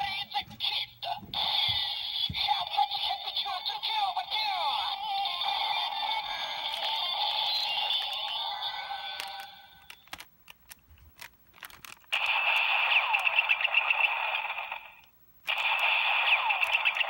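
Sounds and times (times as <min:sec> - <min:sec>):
electronic bell-like ringing from toy: 0:05.6 - 0:09.8
plastic toy clicks: 0:09.2 - 0:13.5, 0:15.5 - 0:17.0.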